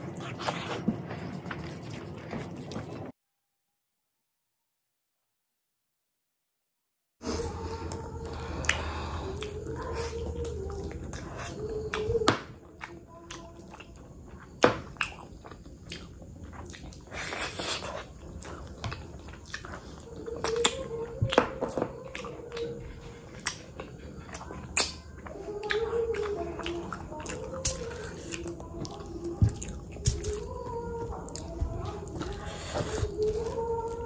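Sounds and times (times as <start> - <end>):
person humming: 7.2 - 12.4, 24.4 - 34.0
wet chewing and lip-smacking: 7.2 - 34.0.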